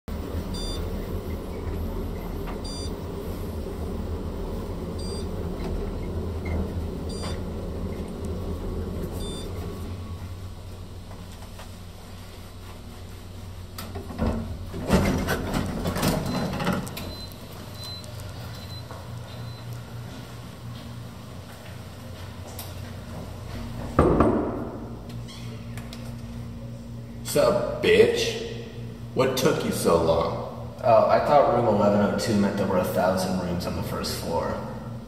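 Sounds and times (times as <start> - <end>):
elevator low hum: 0.1 - 35.0
short high beeps: 0.6 - 0.8, 2.6 - 2.9, 5.0 - 5.2, 7.1 - 7.4, 9.2 - 9.5.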